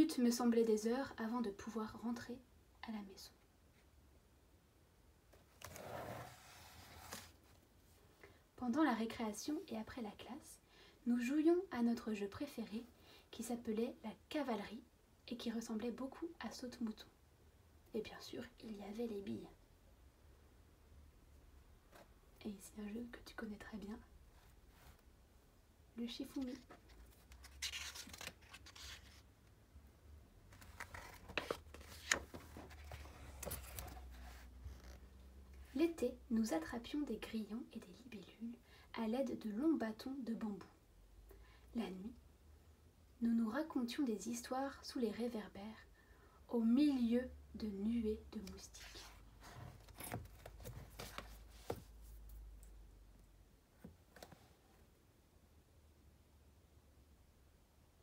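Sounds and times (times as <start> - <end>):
book pages rustling: 5.5 - 7.5, 26.2 - 29.3, 30.5 - 35.1, 48.8 - 52.5.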